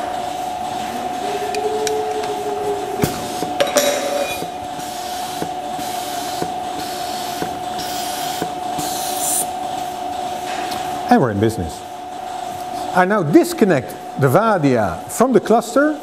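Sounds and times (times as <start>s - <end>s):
milking machinery running: 0.0s - 16.0s.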